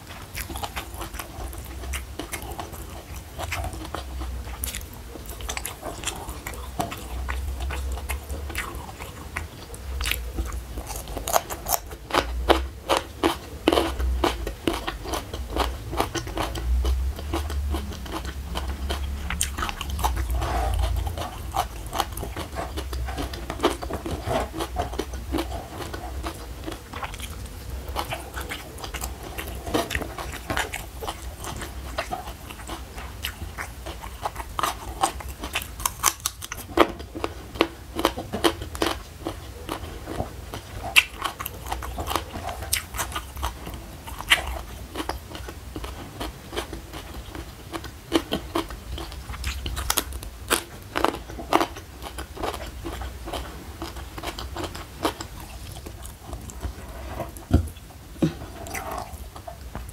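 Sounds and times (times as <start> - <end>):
crunchy chewing of vegetables: 0.0 - 59.9.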